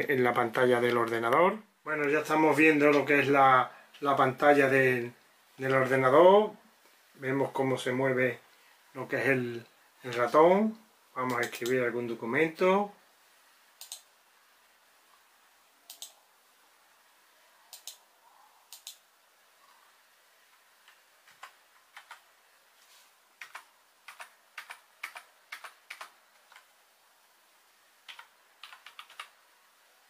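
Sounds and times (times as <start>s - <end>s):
mouse clicks: 13.8s - 14.1s, 15.9s - 16.2s, 17.7s - 18.0s, 18.7s - 19.0s.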